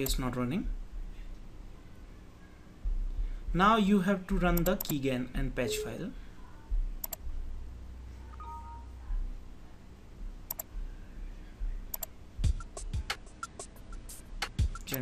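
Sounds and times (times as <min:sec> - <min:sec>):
music with thumping beats: 0:02.8 - 0:03.7, 0:06.7 - 0:07.4, 0:11.6 - 0:15.0
computer mouse clicks: 0:07.0 - 0:07.2, 0:10.5 - 0:10.7, 0:11.9 - 0:12.1.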